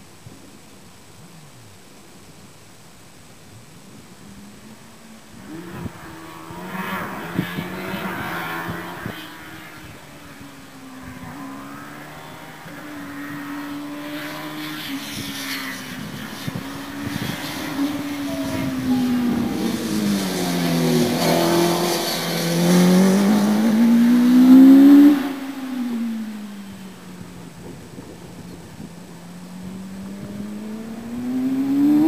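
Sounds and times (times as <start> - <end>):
racing car engine revving: 5.4 - 10.4, 11.0 - 26.4.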